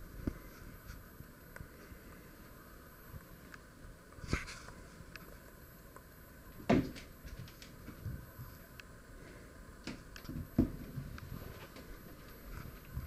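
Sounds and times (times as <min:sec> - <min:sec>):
cat landing on wooden dresser: 0:06.7 - 0:07.1.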